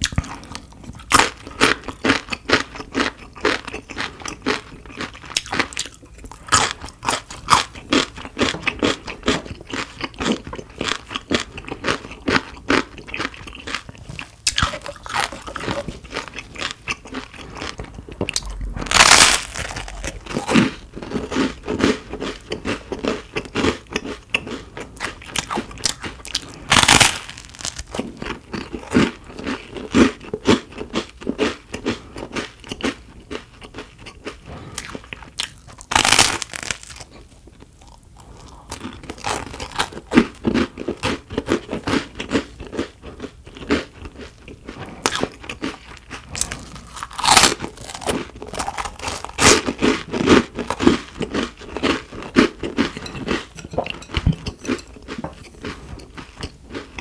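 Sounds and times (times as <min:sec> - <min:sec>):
chewing with crunchy clicks: 0:00.0 - 0:57.0
loud crunching bites: 0:11.6 - 0:30.0, 0:34.8 - 0:37.1, 0:38.7 - 0:42.8, 0:44.9 - 0:52.1.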